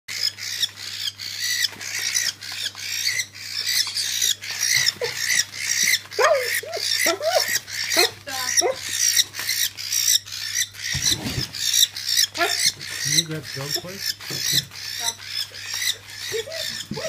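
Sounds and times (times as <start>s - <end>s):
cockatiel squawking harshly: 0.1s - 17.0s.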